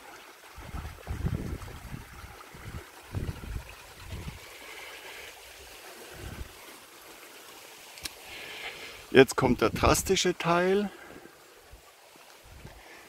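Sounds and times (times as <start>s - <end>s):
stream trickling over stones: 0.0s - 13.0s
wind buffeting microphone: 0.6s - 4.4s, 6.2s - 6.6s.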